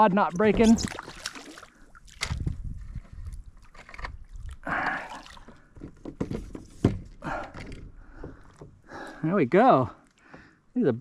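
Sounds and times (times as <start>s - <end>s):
water splashing and sloshing: 0.0s - 10.7s
knocks against kayak hull: 5.7s - 8.8s.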